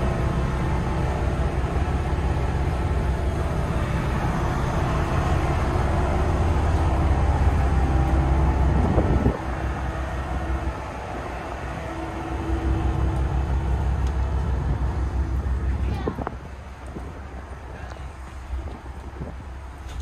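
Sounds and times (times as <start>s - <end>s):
boat engine rumble: 0.0s - 20.0s.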